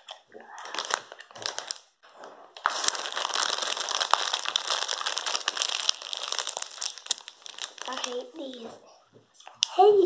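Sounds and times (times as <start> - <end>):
plastic packet crinkling: 0.5 - 1.9, 2.6 - 8.6.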